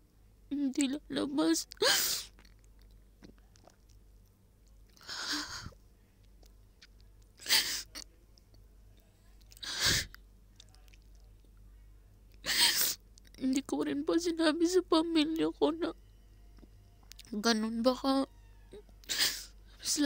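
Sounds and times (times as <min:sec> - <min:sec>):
woman sniffling: 0:05.0 - 0:05.8, 0:09.6 - 0:10.2, 0:12.4 - 0:13.0, 0:19.1 - 0:19.5.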